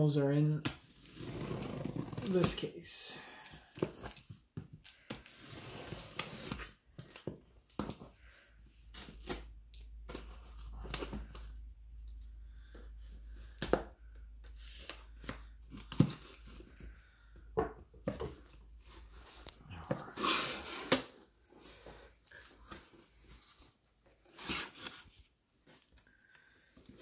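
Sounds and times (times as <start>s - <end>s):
cardboard scraping and crinkling: 0.9s - 2.7s.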